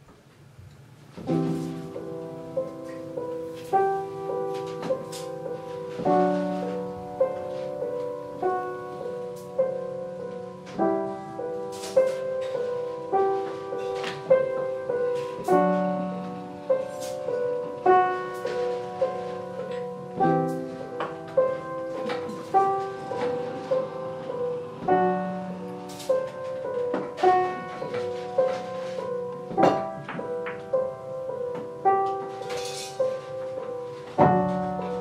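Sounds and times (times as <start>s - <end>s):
piano broken chords: 0.0s - 35.0s
low piano note: 1.2s - 35.0s.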